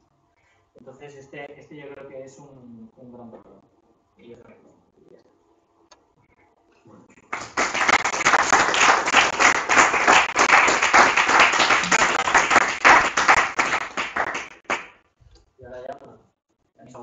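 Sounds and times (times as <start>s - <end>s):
group of people applauding: 7.2s - 15.0s.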